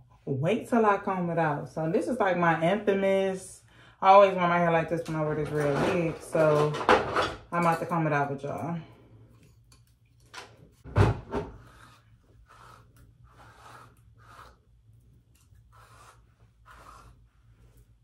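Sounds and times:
comb rasping through hair: 0:11.5 - 0:18.0.

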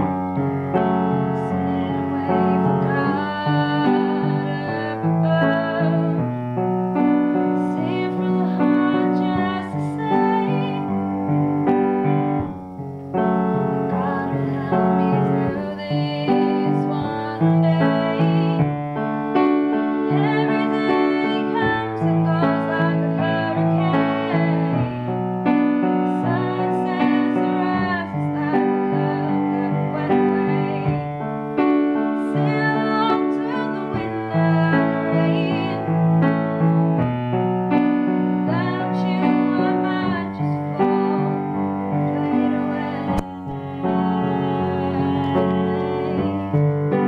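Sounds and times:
girl singing: 0:00.0 - 0:11.2, 0:13.4 - 0:36.0, 0:38.4 - 0:47.0
piano chords: 0:00.0 - 0:47.0.

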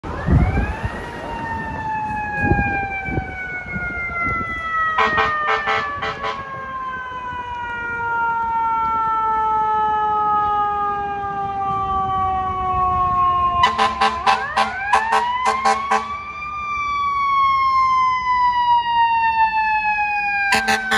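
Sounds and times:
fire truck mechanical siren wailing: 0:00.0 - 0:20.9
short horn blasts: 0:13.6 - 0:16.2, 0:20.5 - 0:20.9.

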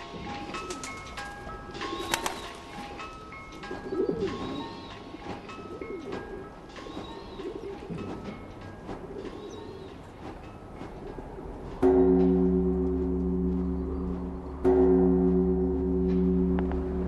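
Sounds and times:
pigeons cooing: 0:00.0 - 0:11.8
soft musical loop: 0:00.0 - 0:17.0.

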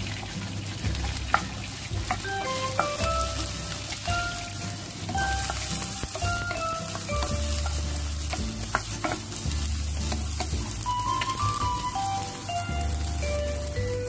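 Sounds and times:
background music: 0:00.0 - 0:14.0
vegetables sizzling in hot oil: 0:00.0 - 0:14.0
wooden spatula scraping a pan: 0:00.8 - 0:12.0.

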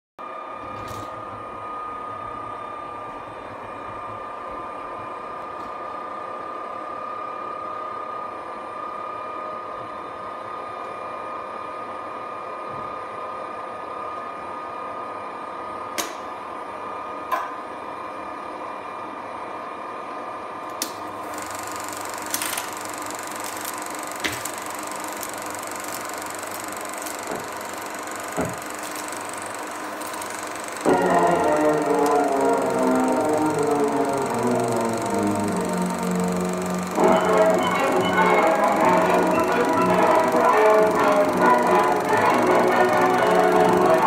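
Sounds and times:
film projector humming: 0:20.7 - 0:44.0
control clicks: 0:20.8 - 0:44.0.

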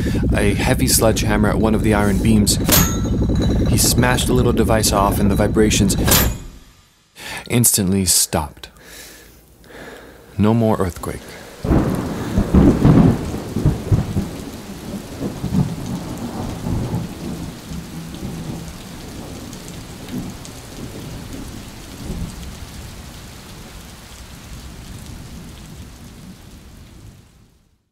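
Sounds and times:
steady rain: 0:00.0 - 0:06.0, 0:08.4 - 0:27.9
thunder rumbling: 0:00.0 - 0:06.1, 0:11.3 - 0:23.0.

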